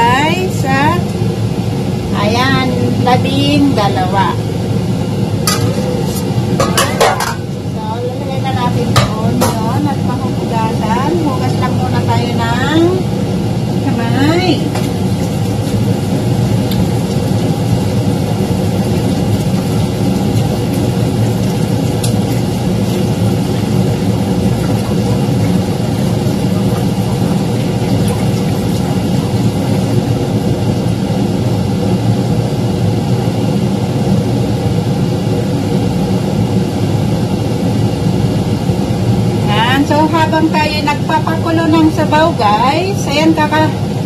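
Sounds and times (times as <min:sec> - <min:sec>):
steady motor hum: 0:00.0 - 0:44.0.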